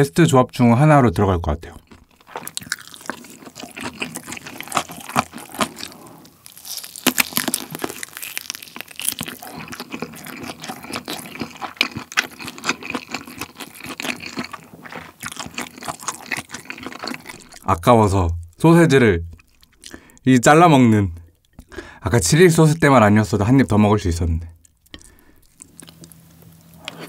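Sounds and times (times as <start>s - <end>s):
close-miked chewing: 1.7s - 17.8s, 19.3s - 20.2s, 24.6s - 27.0s.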